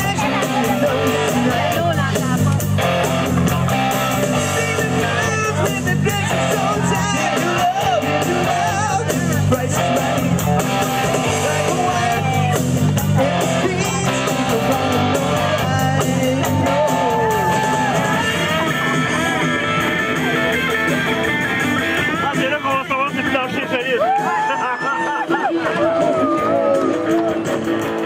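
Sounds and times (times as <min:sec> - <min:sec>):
person singing: 0:00.0 - 0:19.5
rock band with guitar: 0:00.0 - 0:28.0.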